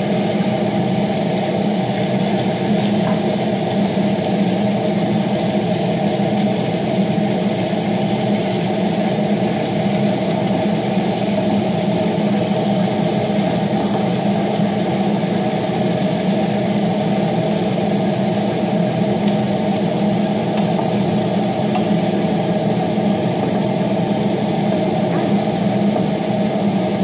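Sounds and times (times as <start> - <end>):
extractor fan humming: 0.0 - 27.0.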